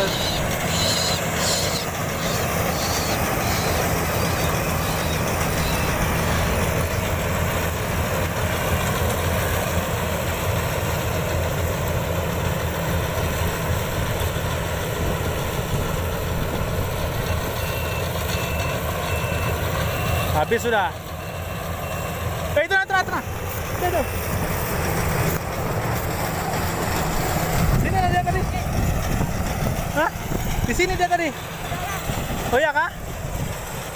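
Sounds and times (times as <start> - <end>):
combine harvester droning: 0.0 - 33.9
short high warning beeps: 17.2 - 22.4.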